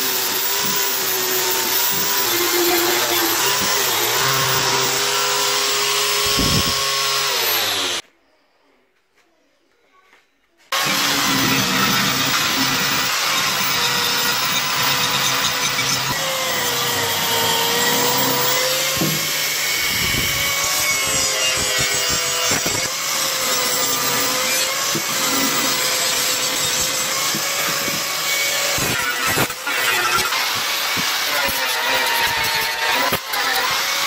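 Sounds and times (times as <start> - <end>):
angle grinder whine: 0.0 - 8.0, 10.8 - 34.0
grinding rasp on metal: 10.7 - 34.0.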